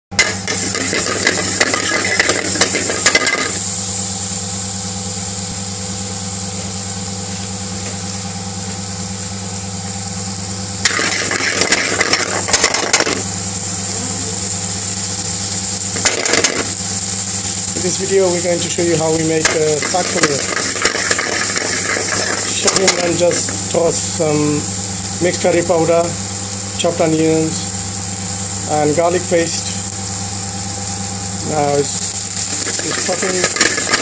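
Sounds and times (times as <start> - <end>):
hot oil sizzling in a pan: 0.1 - 34.0
steady machine hum: 0.1 - 34.0
onions dropped into oil: 0.2 - 3.6, 10.8 - 13.3, 15.8 - 16.8, 19.4 - 23.7, 32.4 - 34.0.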